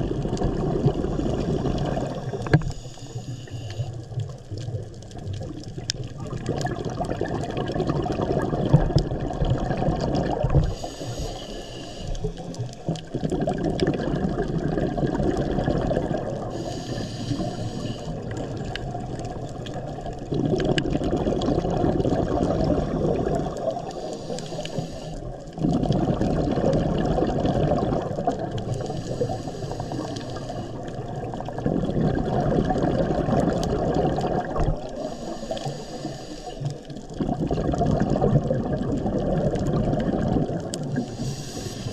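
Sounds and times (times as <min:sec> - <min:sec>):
rush of exhaled bubbles: 0:00.0 - 0:02.8, 0:03.9 - 0:11.4, 0:12.0 - 0:41.9
regulator inhalation hiss: 0:02.2 - 0:04.0, 0:10.6 - 0:12.6, 0:16.5 - 0:18.3, 0:23.9 - 0:25.4, 0:28.7 - 0:30.9, 0:35.0 - 0:36.8, 0:41.0 - 0:41.9.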